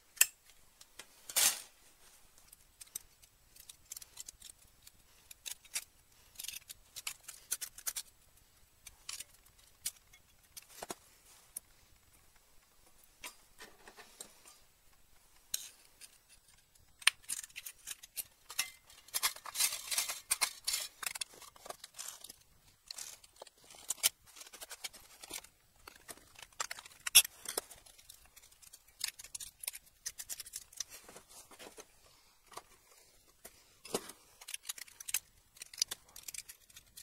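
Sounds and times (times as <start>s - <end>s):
metal plates clicking and scraping: 23.8s - 30.9s.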